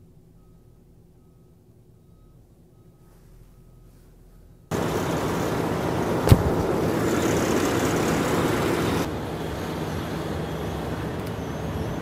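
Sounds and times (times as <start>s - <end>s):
diesel engine running: 0.0s - 12.0s
sharp knock: 6.3s - 6.7s.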